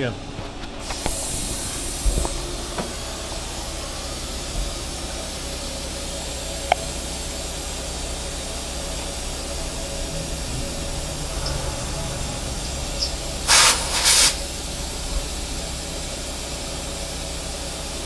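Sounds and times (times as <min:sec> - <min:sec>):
coolant spraying hiss: 0:00.8 - 0:18.0.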